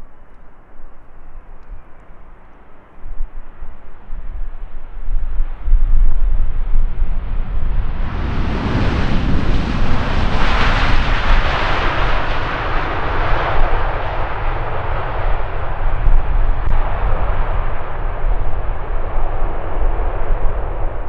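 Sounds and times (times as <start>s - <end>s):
steady low rumble: 0.0s - 21.0s
jetliner engines roaring: 6.0s - 21.0s.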